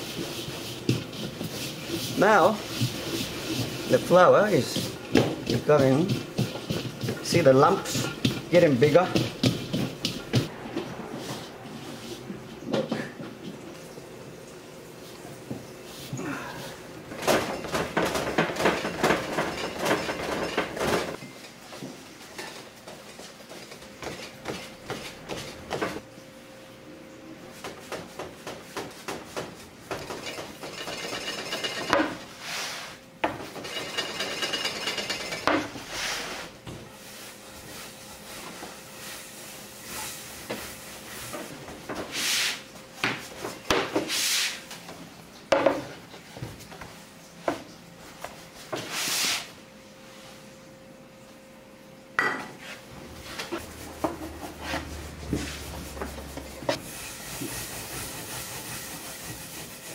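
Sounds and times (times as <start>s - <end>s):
dough kneaded on wooden board: 0.0s - 10.6s
rolling pin swishing over dough: 0.0s - 13.2s, 27.5s - 33.0s, 33.6s - 44.7s, 48.2s - 50.3s, 52.6s - 59.9s.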